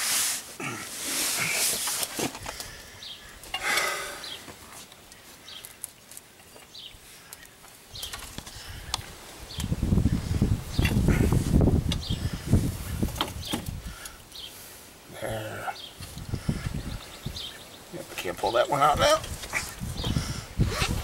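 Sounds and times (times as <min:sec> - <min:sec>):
rustling: 0:00.0 - 0:09.3.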